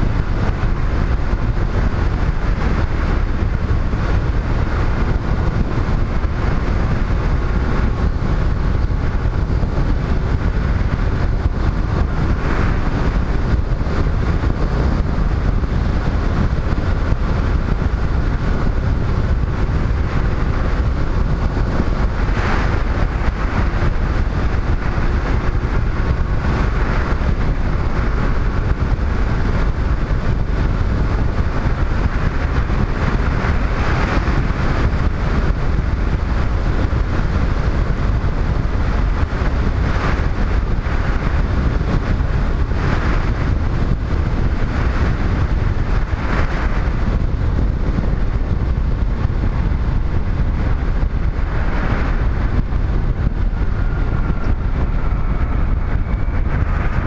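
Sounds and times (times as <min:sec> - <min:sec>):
motorcycle engine: 0:00.0 - 0:57.0
wind rumble on microphone: 0:00.0 - 0:57.0.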